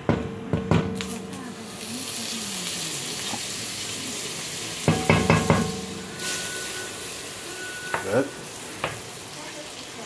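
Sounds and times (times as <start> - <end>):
butter sizzling in a pot: 1.0 - 10.0
spoon knocking on metal pot: 4.9 - 6.0.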